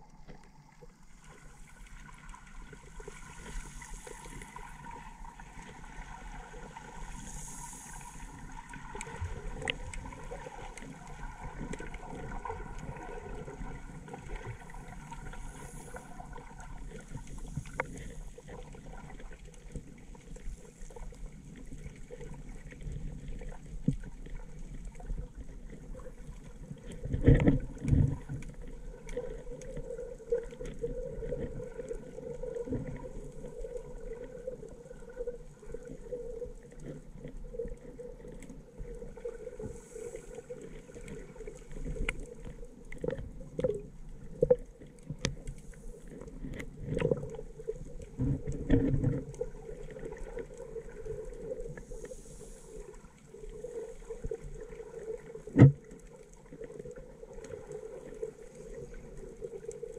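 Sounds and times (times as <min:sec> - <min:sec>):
steady low underwater hum: 0:00.0 - 0:59.9
water thumping against camera: 0:55.5 - 0:55.9.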